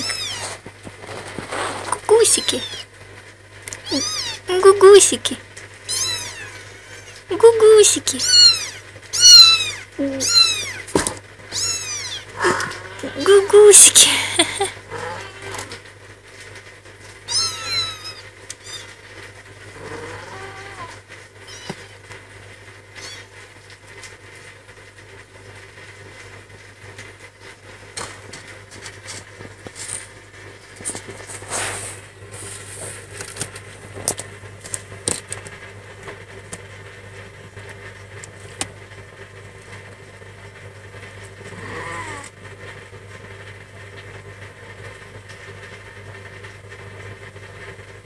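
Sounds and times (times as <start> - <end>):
cat purring: 0.0 - 2.8, 11.8 - 15.9, 19.2 - 21.1, 41.4 - 42.3
kittens scuffling and scratching: 0.0 - 2.8, 27.4 - 36.6
cat mew: 11.5 - 13.2, 14.8 - 15.8, 17.3 - 18.9, 19.8 - 21.9, 41.5 - 42.3.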